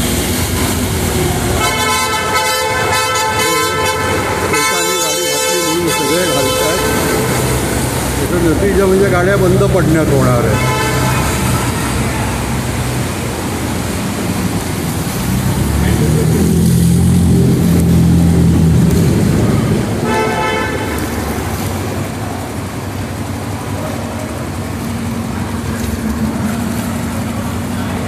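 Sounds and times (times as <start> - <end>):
road traffic: 0.0 - 28.0
vehicle engine rumbling: 0.0 - 28.0
vehicle horn: 1.6 - 13.0, 20.0 - 21.6.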